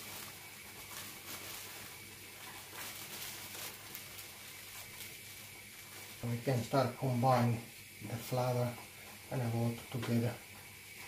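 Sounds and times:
paper bag rustling and crinkling: 0:00.0 - 0:07.5
flour pouring hiss: 0:00.0 - 0:11.0.

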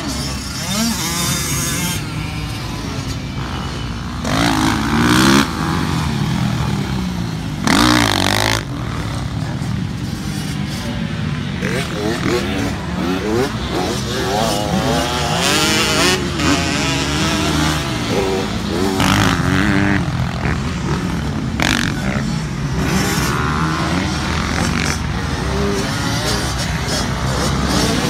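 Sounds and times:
dirt bike engines revving: 0:00.0 - 0:28.0.

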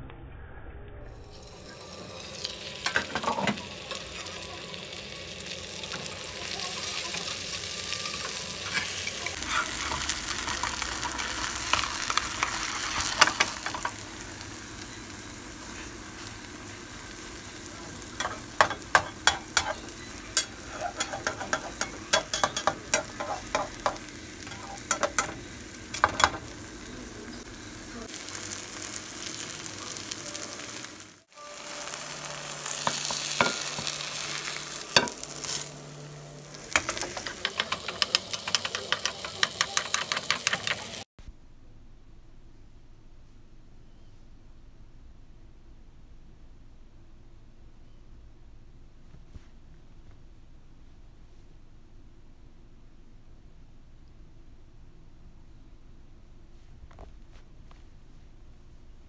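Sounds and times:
pancake sizzling in oil: 0:01.2 - 0:41.1
metal spatula clicking and scraping: 0:18.2 - 0:26.4, 0:36.6 - 0:41.0.

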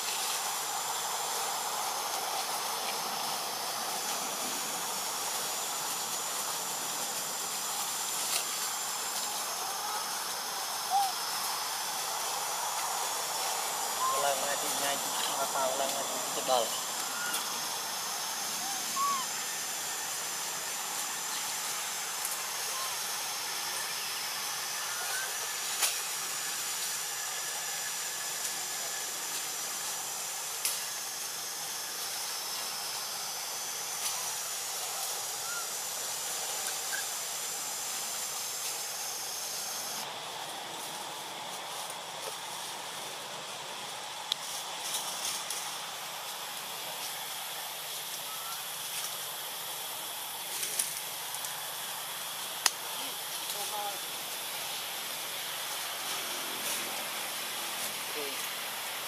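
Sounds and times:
forest ambience hiss: 0:00.0 - 0:59.0.

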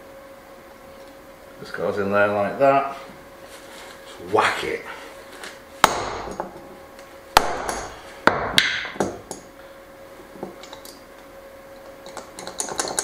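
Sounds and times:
hammer striking crimping tool: 0:05.8 - 0:06.5, 0:07.4 - 0:09.2.

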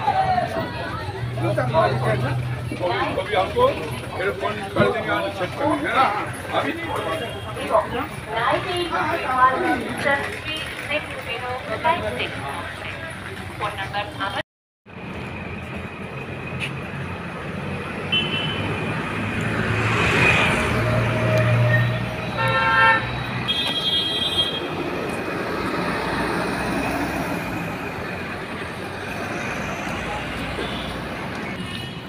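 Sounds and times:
traffic rumble: 0:00.0 - 0:32.0
vehicle horns honking: 0:18.1 - 0:18.8, 0:22.2 - 0:24.8, 0:30.6 - 0:32.0.

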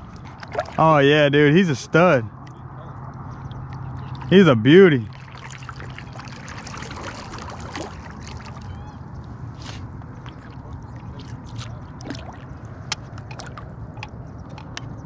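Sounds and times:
paddle splashing and dripping: 0:00.0 - 0:00.9, 0:03.6 - 0:04.4, 0:05.0 - 0:14.6
small clicks and knocks: 0:12.9 - 0:15.0.

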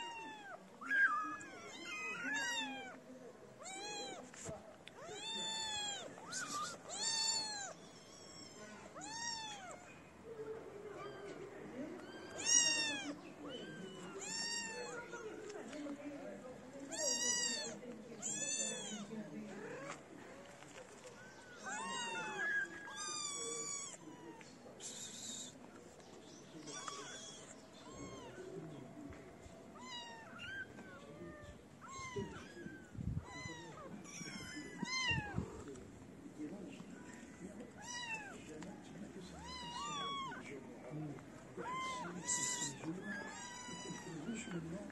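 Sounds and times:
kittens meowing: 0:00.0 - 0:03.0, 0:03.6 - 0:04.3, 0:05.0 - 0:10.0, 0:10.8 - 0:15.2, 0:16.9 - 0:20.0, 0:21.2 - 0:25.6, 0:26.5 - 0:28.6, 0:29.7 - 0:35.7, 0:37.8 - 0:38.4, 0:39.3 - 0:40.6, 0:41.5 - 0:44.9.

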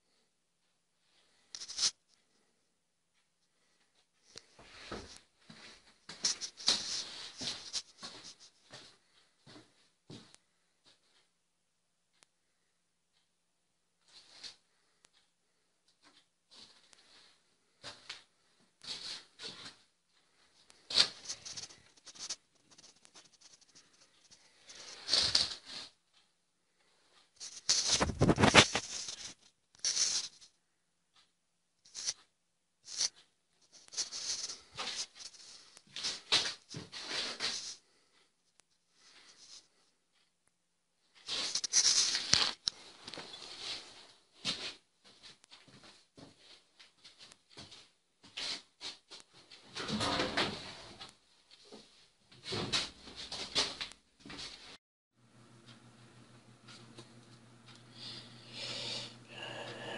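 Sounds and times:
rustling and scraping of objects: 0:01.0 - 0:11.3, 0:15.9 - 0:31.3, 0:31.9 - 0:40.3, 0:41.0 - 0:54.8
rustling and clattering: 0:16.0 - 0:26.3, 0:27.1 - 0:30.6, 0:32.9 - 0:37.8.

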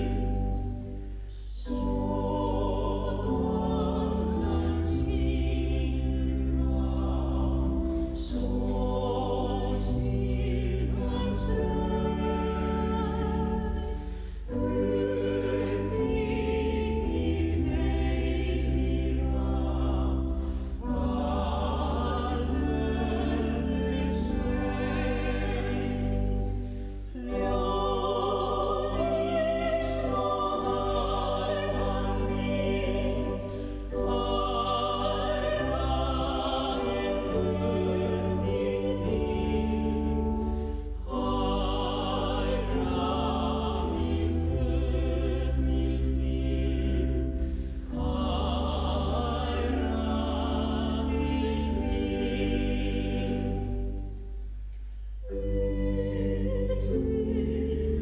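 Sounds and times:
choir singing a hymn: 0:00.0 - 0:58.0
low organ notes: 0:00.0 - 0:58.0
singers breathing: 0:13.9 - 0:14.6, 0:20.4 - 0:20.8, 0:26.5 - 0:27.2, 0:33.4 - 0:33.9, 0:40.4 - 0:41.0, 0:47.3 - 0:47.9.

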